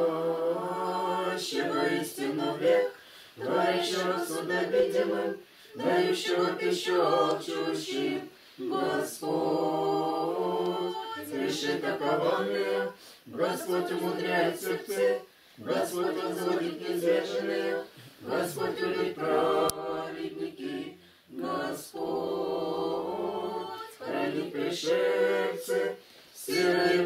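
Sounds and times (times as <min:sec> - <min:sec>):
children's choir singing: 0:00.0 - 0:27.0.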